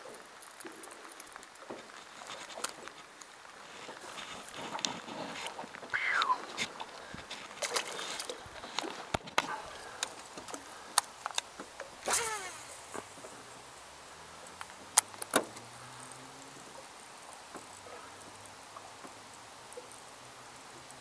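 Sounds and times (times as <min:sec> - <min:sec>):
fishing tackle clicking and knocking: 0:04.6 - 0:13.4
sharp clicks: 0:05.8 - 0:13.3
fishing rod cast whoosh: 0:12.0 - 0:13.0
fishing reel spool whirring: 0:12.0 - 0:14.9.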